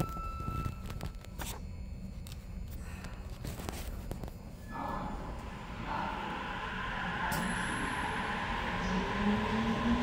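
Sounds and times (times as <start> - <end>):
low motor whine: 0.0 - 10.0
train rumbling: 4.5 - 10.0.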